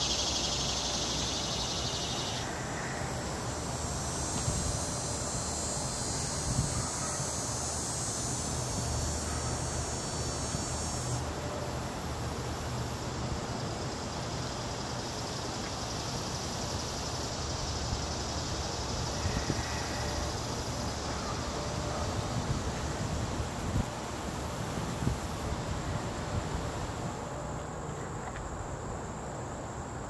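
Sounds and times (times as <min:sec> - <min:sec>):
high hiss: 0:00.0 - 0:30.0.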